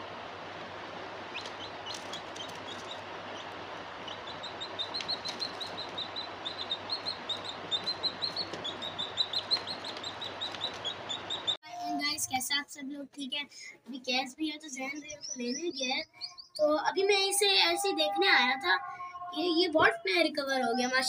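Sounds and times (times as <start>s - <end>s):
background hiss: 0.0s - 12.1s
chick peeping: 1.2s - 11.6s.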